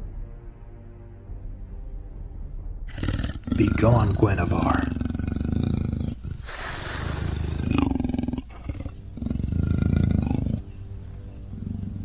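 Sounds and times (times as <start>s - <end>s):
growling animal roars: 2.9s - 12.0s.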